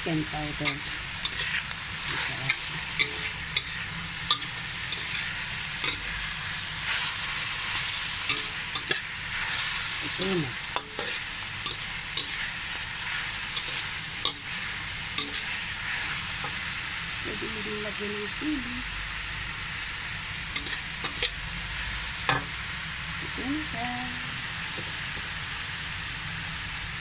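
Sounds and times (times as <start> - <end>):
food sizzling in a wok: 0.0 - 27.0
metal spatula scraping a wok: 0.6 - 16.7, 20.5 - 21.4.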